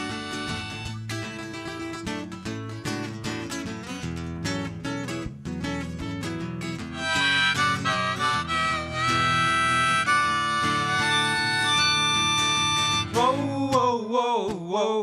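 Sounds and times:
harmonica: 0.0s - 1.4s, 6.9s - 13.4s
electric bass guitar: 0.0s - 13.7s
strummed acoustic guitar: 0.0s - 14.0s.

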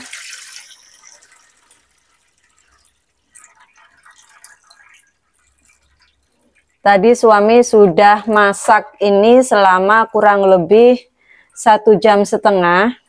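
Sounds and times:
broth pouring and splashing: 0.0s - 7.1s
small trickles and splashes: 0.0s - 7.2s.

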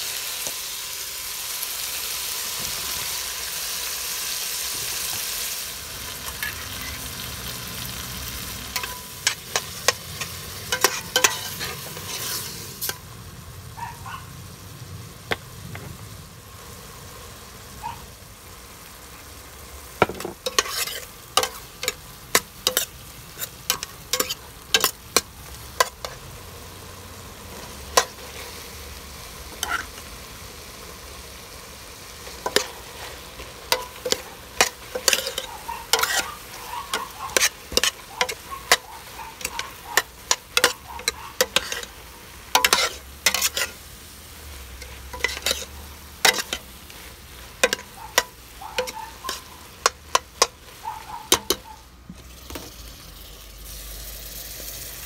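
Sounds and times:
food sizzling: 0.0s - 55.0s
metal spoon scraping a pot: 8.7s - 13.0s, 20.0s - 26.2s, 29.5s - 30.0s, 32.3s - 43.8s, 44.7s - 52.8s.

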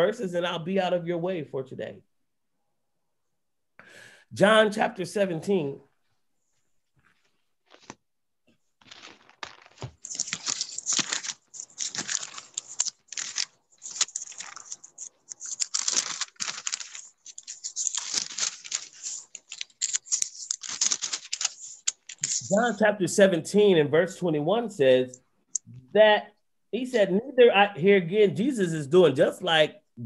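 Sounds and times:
rustling and crinkling: 5.9s - 22.8s.

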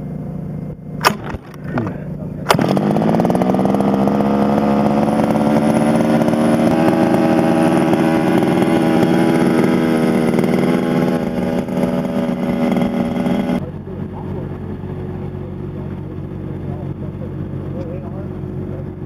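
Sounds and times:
small two-stroke engine running: 1.0s - 19.0s.

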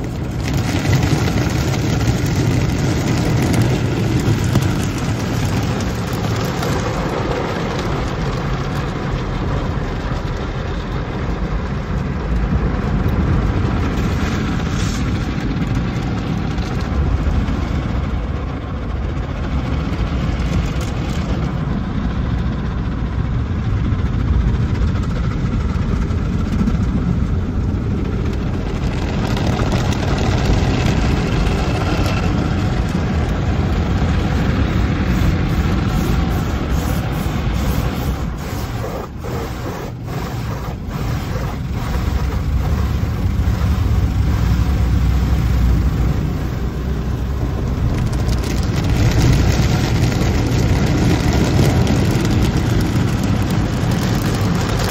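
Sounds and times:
car wash machinery rumble: 0.0s - 54.9s
water spraying on glass: 34.7s - 43.6s.

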